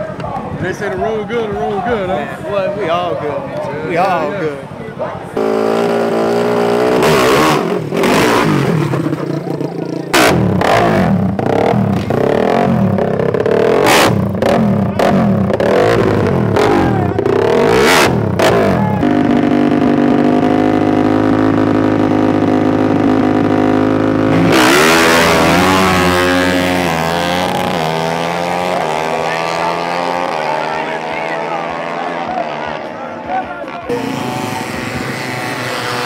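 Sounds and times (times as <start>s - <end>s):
racing engines revving: 0.0s - 36.0s.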